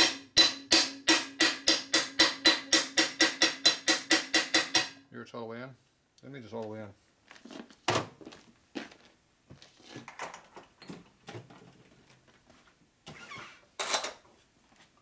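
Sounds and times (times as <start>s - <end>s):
tools clattering on metal bench: 10.0s - 11.8s, 13.8s - 14.2s.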